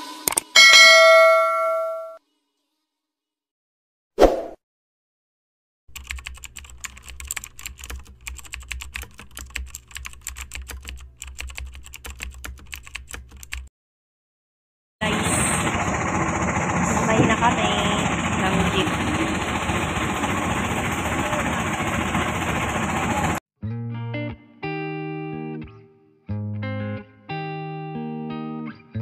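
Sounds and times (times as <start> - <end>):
keyboard typing: 5.9 - 13.7
car cabin running noise: 15.0 - 23.4.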